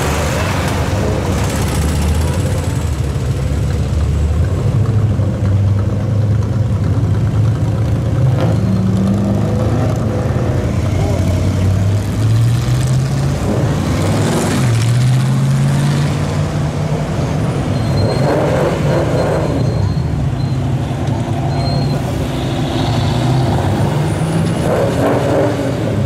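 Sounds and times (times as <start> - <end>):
cars driving slowly past: 0.0 - 26.0.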